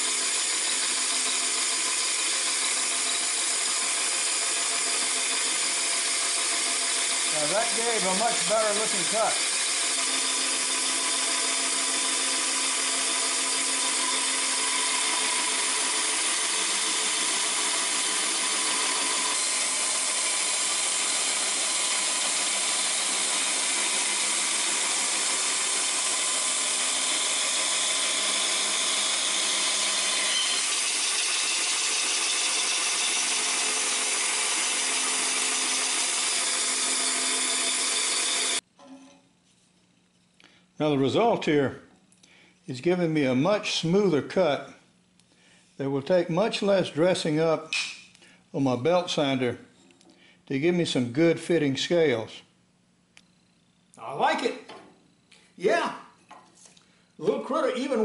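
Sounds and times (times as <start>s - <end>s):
bandsaw cutting a log: 0.0s - 38.6s.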